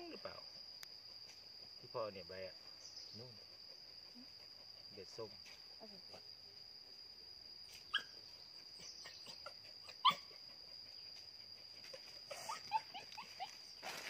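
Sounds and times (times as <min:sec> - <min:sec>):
insects droning: 0:00.0 - 0:14.0
high animal cries: 0:09.0 - 0:10.4.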